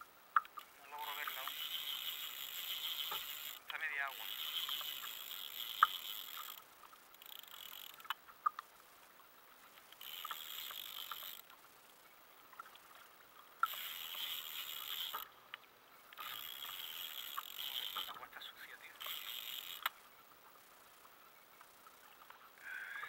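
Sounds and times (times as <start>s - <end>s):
fishing rod clicks and knocks: 0.3s - 8.7s, 9.7s - 11.6s, 12.5s - 18.2s, 19.0s - 20.0s.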